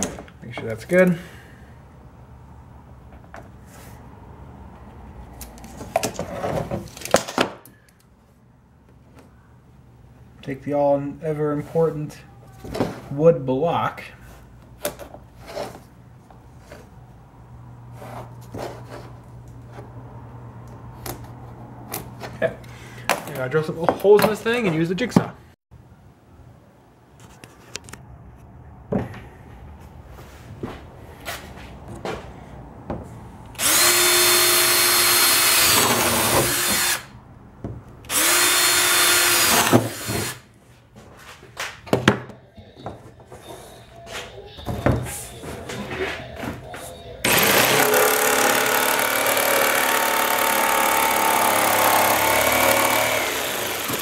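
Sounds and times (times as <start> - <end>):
power drill boring through wood: 33.6 - 37.1, 38.1 - 40.4, 47.2 - 54.0.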